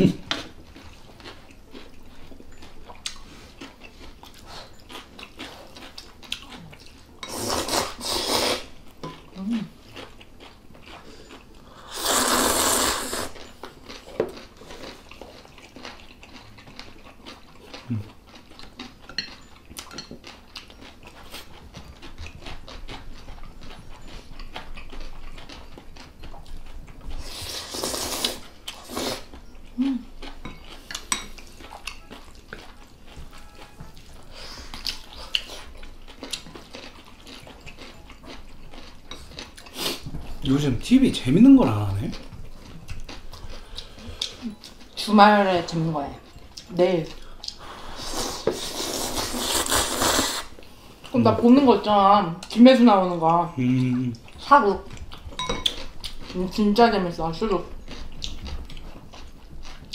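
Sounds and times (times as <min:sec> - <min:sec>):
loud noodle slurps: 0:07.3 - 0:08.7, 0:11.9 - 0:13.3, 0:27.3 - 0:29.3, 0:48.0 - 0:50.5.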